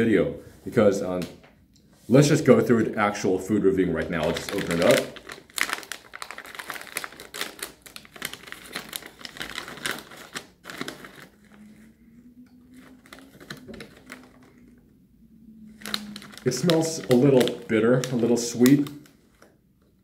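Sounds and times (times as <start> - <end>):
plastic packaging crinkling: 3.9 - 12.0, 12.6 - 14.8, 15.6 - 19.6.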